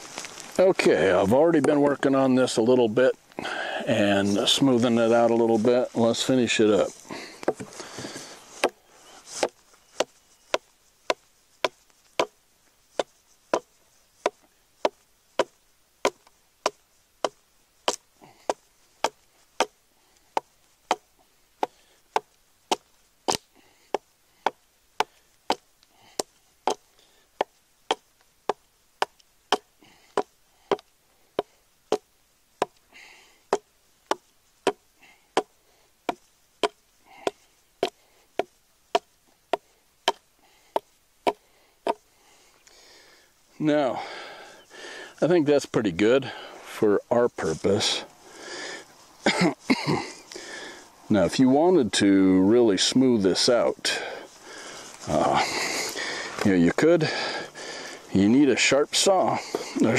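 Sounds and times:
hatchet chopping wood: 0:07.4 - 0:08.8, 0:09.4 - 0:12.4, 0:13.0 - 0:19.8, 0:20.4 - 0:26.8, 0:27.4 - 0:32.8, 0:33.5 - 0:34.8, 0:35.4 - 0:42.0.

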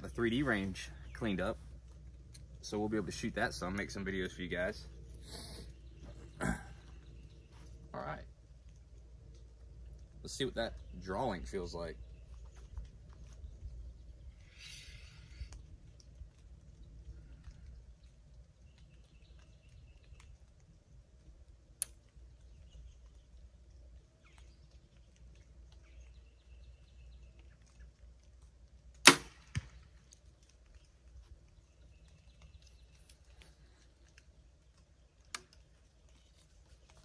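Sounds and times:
arrow hitting target: 0:29.0 - 0:29.8.

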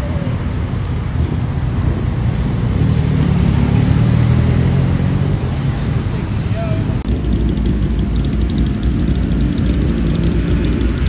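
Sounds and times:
motorcycle engine idling: 0:07.1 - 0:11.0.

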